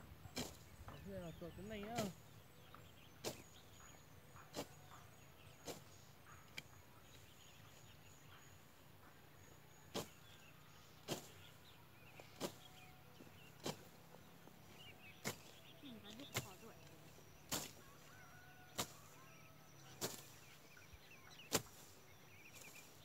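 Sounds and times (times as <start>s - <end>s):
blade slashing through dry grass: 11.0s - 11.4s, 12.2s - 12.8s, 13.4s - 14.0s, 15.1s - 16.7s, 17.3s - 20.4s, 21.4s - 23.0s.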